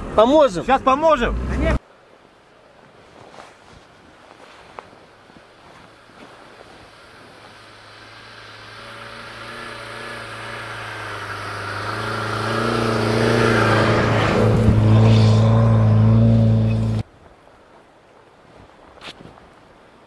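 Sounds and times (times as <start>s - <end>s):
vehicle engine driving: 0.0s - 1.8s, 5.9s - 17.0s
tyres churning snow: 3.0s - 17.0s.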